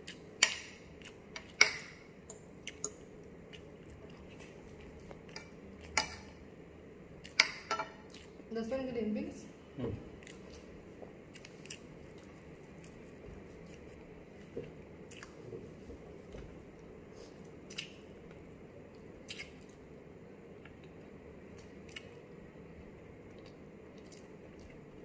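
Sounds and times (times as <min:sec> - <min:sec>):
man chewing food: 0:00.0 - 0:06.5, 0:07.2 - 0:08.5, 0:10.1 - 0:25.0
low room hum: 0:00.0 - 0:25.0.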